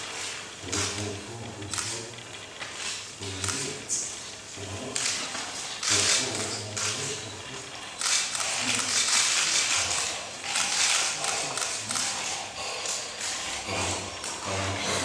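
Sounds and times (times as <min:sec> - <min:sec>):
man breathing harshly: 0:12.2 - 0:14.2.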